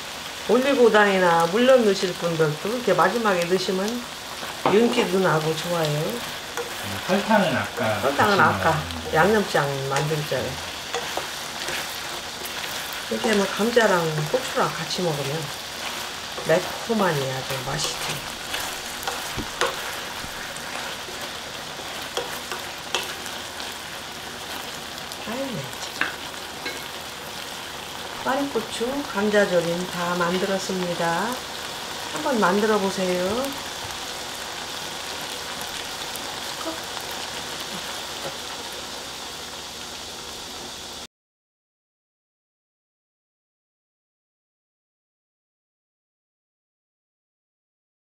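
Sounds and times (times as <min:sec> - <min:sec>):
food sizzling in a frying pan: 0:00.0 - 0:41.1
wooden spatula knocking pan: 0:17.6 - 0:20.4.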